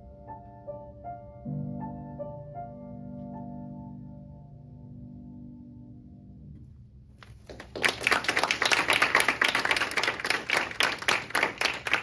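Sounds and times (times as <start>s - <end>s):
audience clapping: 7.2s - 12.0s.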